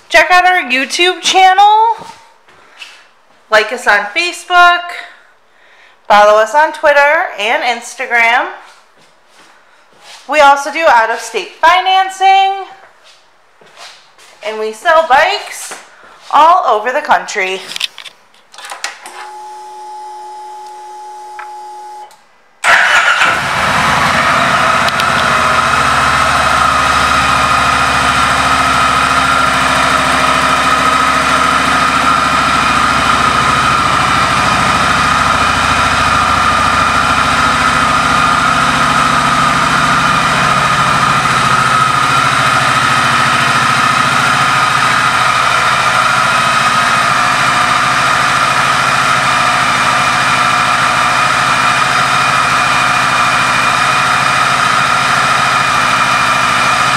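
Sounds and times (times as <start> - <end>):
motorcycle engine starting and idling: 18.6 - 56.9.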